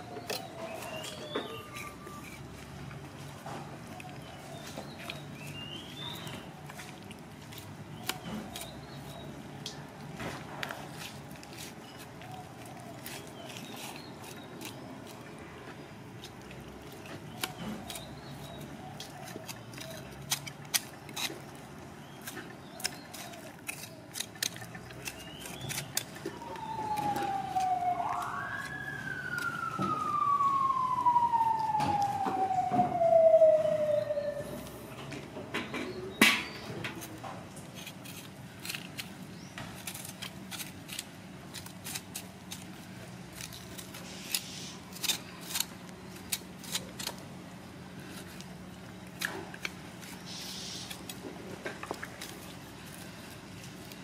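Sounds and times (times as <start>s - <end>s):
siren-like wail: 26.1s - 35.2s.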